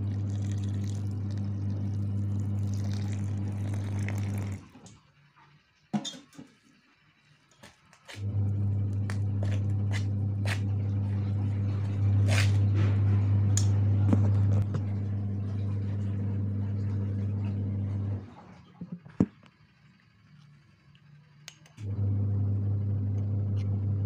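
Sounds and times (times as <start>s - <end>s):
loud low hum: 0.0s - 4.6s, 8.2s - 18.3s
spoon stirring dough in metal bowl: 9.0s - 13.1s.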